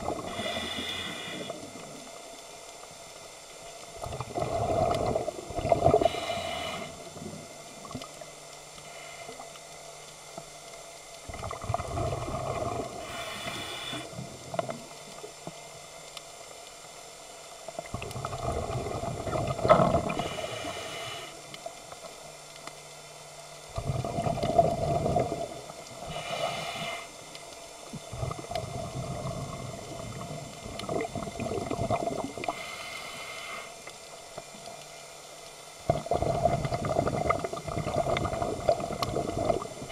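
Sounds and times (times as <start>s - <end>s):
bubbling exhale underwater: 0.0s - 2.1s, 4.0s - 8.0s, 11.3s - 14.9s, 17.8s - 20.6s, 23.7s - 26.6s, 28.1s - 32.7s, 35.8s - 39.9s
regulator hiss on inhale: 0.1s - 2.5s, 4.4s - 7.6s, 8.7s - 9.9s, 12.2s - 15.2s, 20.0s - 22.0s, 23.9s - 30.6s, 32.2s - 35.1s.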